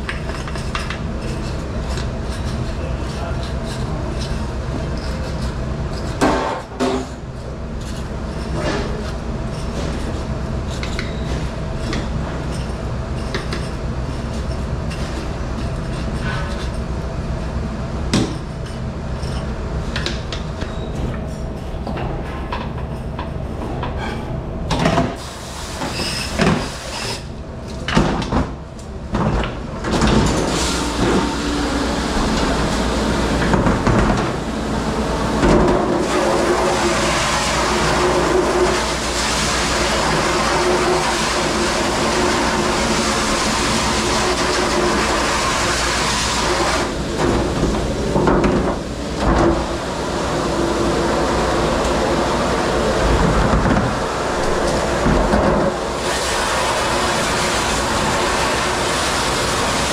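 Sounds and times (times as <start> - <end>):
dish machine humming: 28.5 - 59.9.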